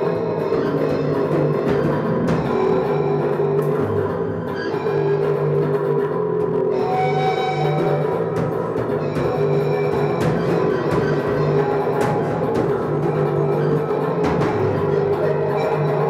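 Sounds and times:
drum hits: 7.4s - 15.3s.

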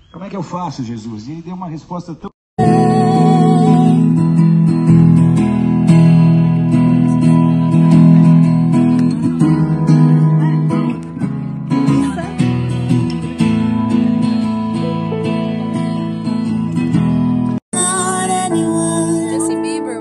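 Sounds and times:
strummed acoustic guitar music: 2.6s - 20.0s.

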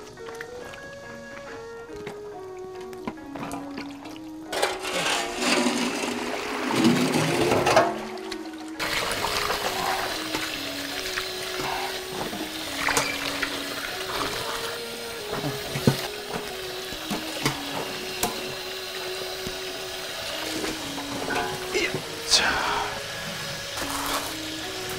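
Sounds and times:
water drips and splashes: 0.0s - 4.6s, 5.7s - 24.9s
background music: 0.0s - 24.9s
water sloshing in steel basin: 3.4s - 19.0s.

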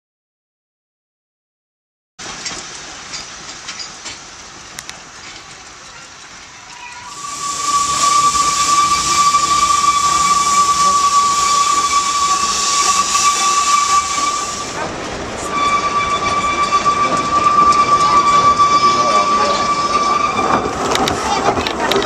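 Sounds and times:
steam hissing: 6.5s - 21.7s
steam locomotive whistle: 6.9s - 21.1s.

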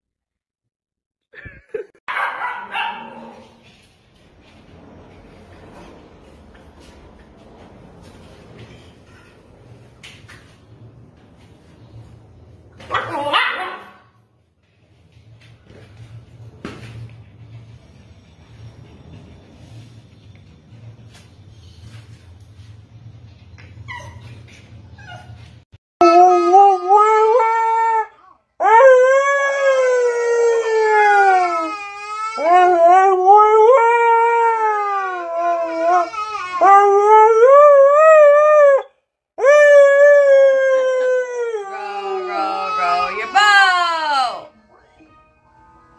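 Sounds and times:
dog howling: 32.4s - 43.2s.

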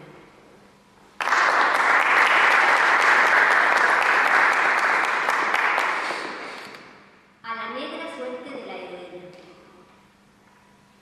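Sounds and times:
audience applauding: 1.2s - 6.8s.

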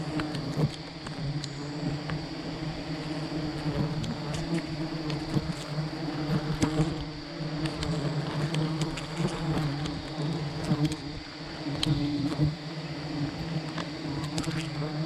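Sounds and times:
bees buzzing: 0.0s - 15.0s
faint clicks: 7.6s - 10.0s, 10.6s - 11.0s, 11.7s - 12.0s.

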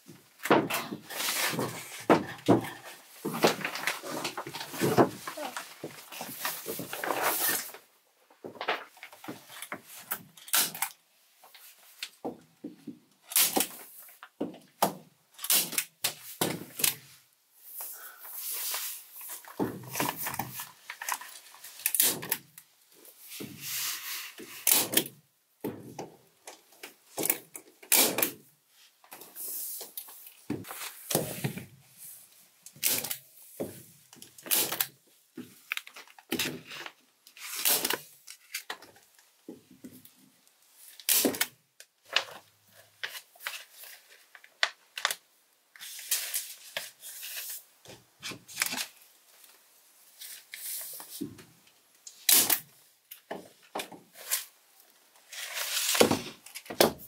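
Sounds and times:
plastic sheet crinkling: 2.8s - 7.9s.

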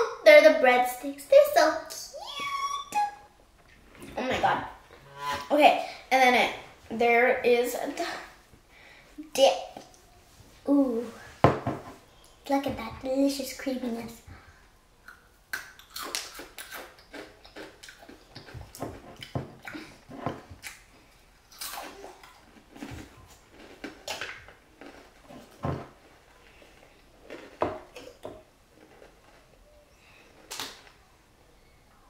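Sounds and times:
biscuit sticks crunching: 21.5s - 28.2s.

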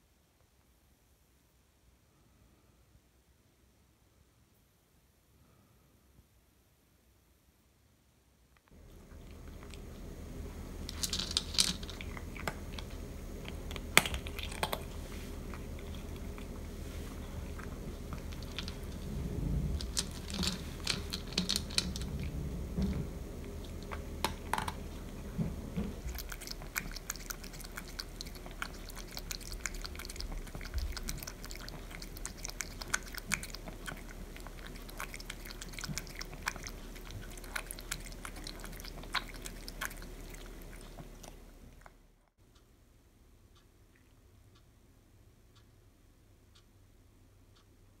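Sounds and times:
cat crunching dry kibble: 9.0s - 41.9s.

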